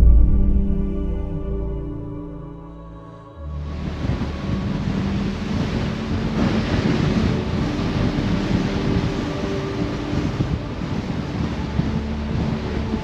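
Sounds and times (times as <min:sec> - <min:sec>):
rough sea breaking along ship: 0:03.4 - 0:13.0
wind buffeting microphone: 0:03.5 - 0:13.0.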